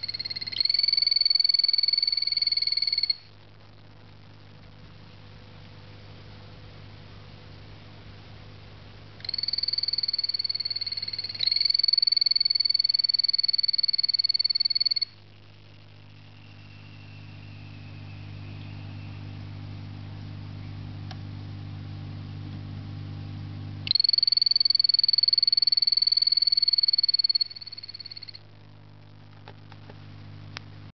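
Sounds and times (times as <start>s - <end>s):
frog pulsed trill: 0.0s - 3.3s, 9.2s - 15.2s, 16.1s - 19.5s, 23.8s - 28.4s
low steady hum: 0.0s - 30.9s.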